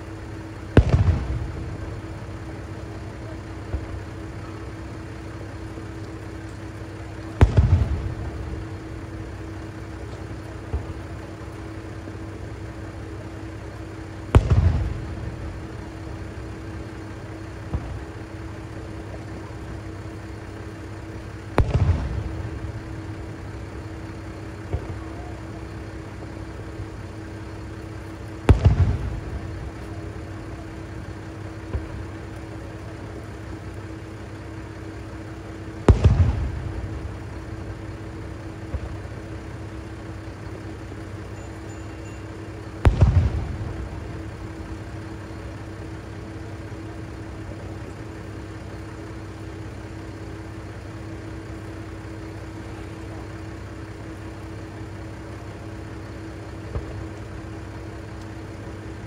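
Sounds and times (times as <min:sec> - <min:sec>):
firework bursts booming: 0:00.0 - 0:55.1, 0:55.9 - 0:59.0
diesel railcar idling: 0:00.0 - 0:59.0
firework launch thud: 0:00.8 - 0:01.9, 0:14.4 - 0:15.2, 0:21.6 - 0:22.5, 0:28.5 - 0:29.4, 0:42.8 - 0:44.2.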